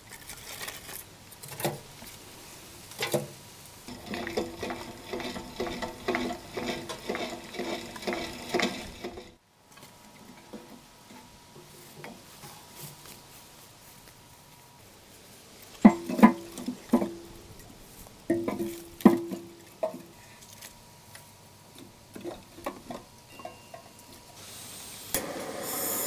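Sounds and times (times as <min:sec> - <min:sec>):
faint background noise: 0:00.0 - 0:26.0
utensil knocking: 0:03.9 - 0:09.4, 0:15.8 - 0:17.3, 0:18.3 - 0:20.0
utensil stirring in metal pot: 0:03.9 - 0:09.4.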